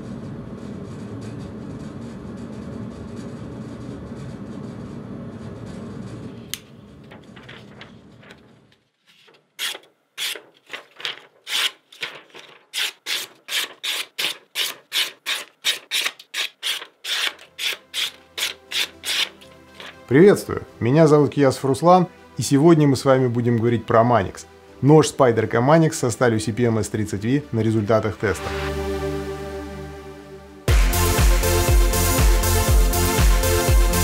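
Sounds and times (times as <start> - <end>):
low rumble: 7.1 - 8.3
knife slicing paper: 9.0 - 20.0.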